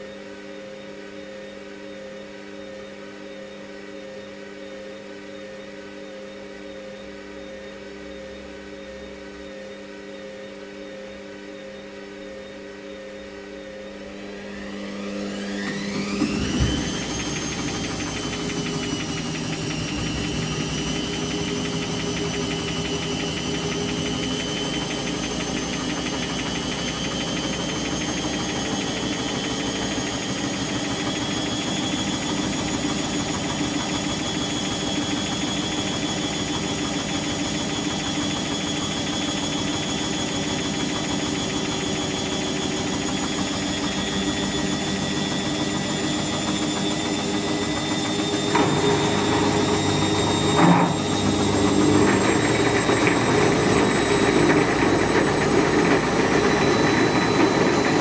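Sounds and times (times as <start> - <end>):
washing machine spinning: 13.5 - 58.0.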